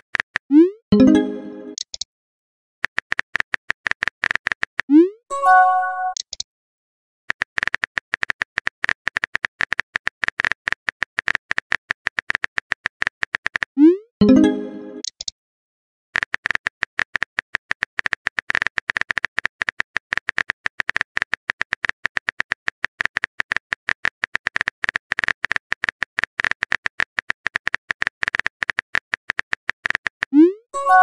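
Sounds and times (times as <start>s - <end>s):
message arrival chime: 0.9s - 1.8s, 5.3s - 6.2s, 14.2s - 15.0s, 30.8s - 31.0s
rapid keyboard tap clicks: 7.3s - 13.8s, 16.2s - 30.3s.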